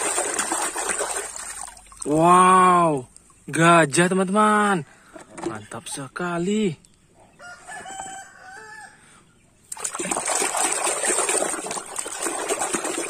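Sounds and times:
hand splashing water in tub: 0:00.0 - 0:02.3, 0:09.7 - 0:13.0
rooster crowing: 0:07.4 - 0:09.2.

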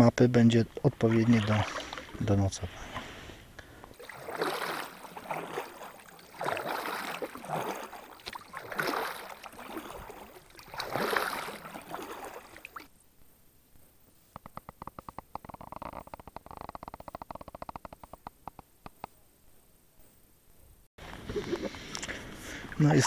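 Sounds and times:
kayak paddle splashing water: 0:00.8 - 0:12.9, 0:21.1 - 0:23.0.

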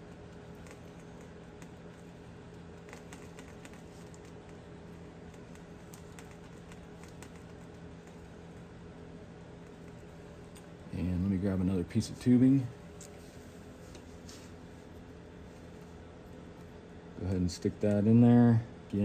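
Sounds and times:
wires clicking: 0:00.0 - 0:08.4
steady low hum: 0:00.0 - 0:19.0.

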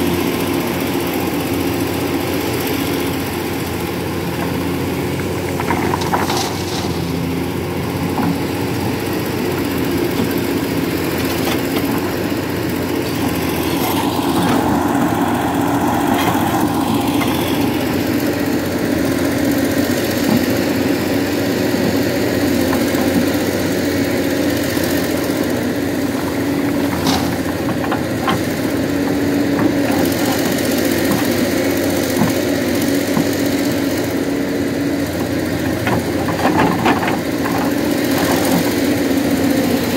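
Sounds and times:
excavator diesel engine working: 0:00.0 - 0:39.9
truck engine idling: 0:00.2 - 0:39.9.

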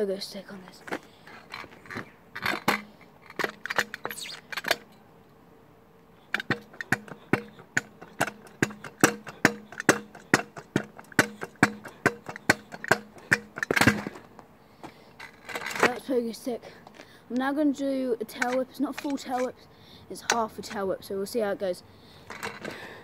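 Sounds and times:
scooter landing knocks: 0:06.4 - 0:14.3.

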